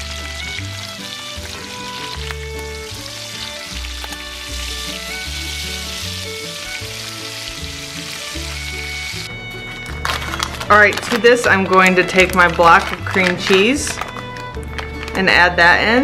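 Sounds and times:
bacon sizzling in a skillet: 0.0s - 9.3s.

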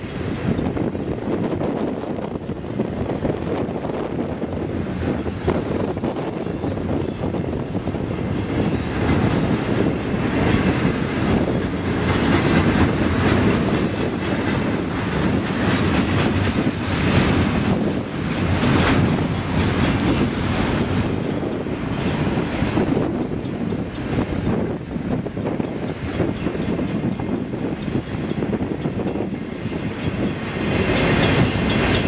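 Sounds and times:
train rumbling: 0.0s - 32.0s
wheels clattering over rails: 6.8s - 32.0s.

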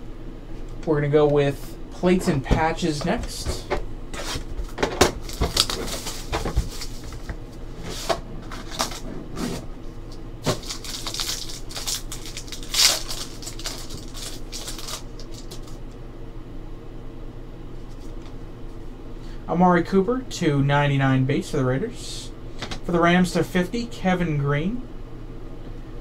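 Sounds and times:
handling of card stack: 2.2s - 15.9s
foil wrapper crinkling and tearing: 5.2s - 7.4s, 8.5s - 9.0s, 10.1s - 15.8s.

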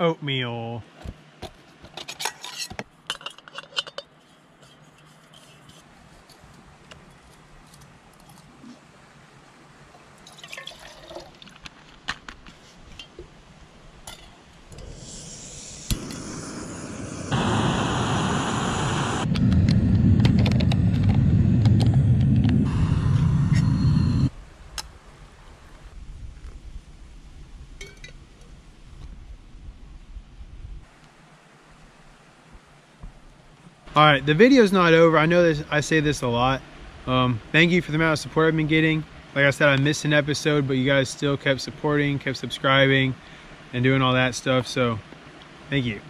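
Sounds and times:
camp stove burner roaring: 14.7s - 24.3s.

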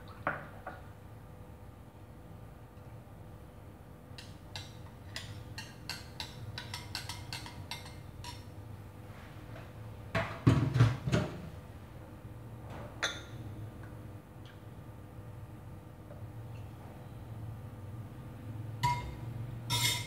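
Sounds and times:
kitchenware clinking against ceramic bowls: 4.2s - 8.5s, 18.8s - 20.0s.

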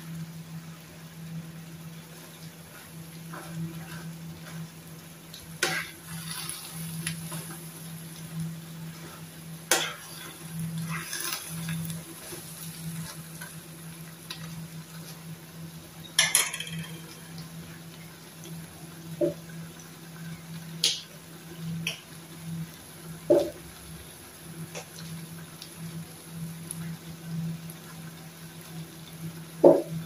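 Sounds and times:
metal clinks on pan: 16.2s - 17.0s.

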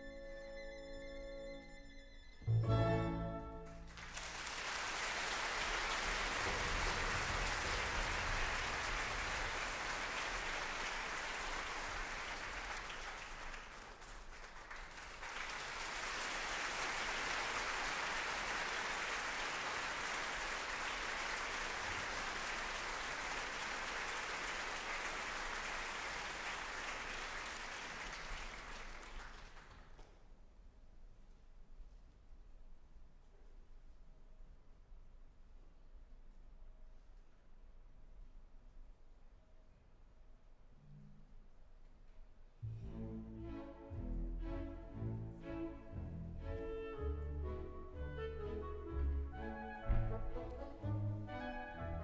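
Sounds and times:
audience applauding: 3.6s - 30.2s.

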